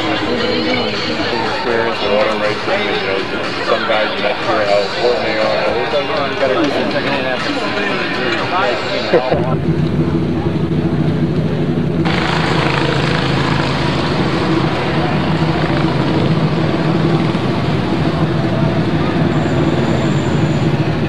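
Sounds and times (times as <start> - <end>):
engine noise with hiss: 9.3 - 21.0.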